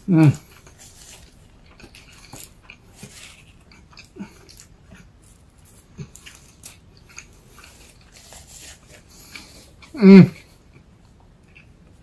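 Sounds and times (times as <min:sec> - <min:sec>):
low throat sounds: 0:00.0 - 0:00.5, 0:09.9 - 0:10.5.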